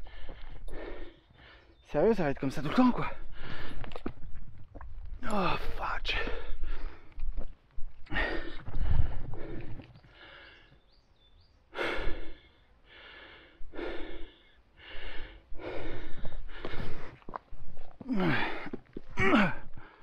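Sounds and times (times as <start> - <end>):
man breathing hard: 0.0 - 1.8, 3.0 - 4.0, 5.3 - 7.4, 8.0 - 10.8, 11.7 - 20.0.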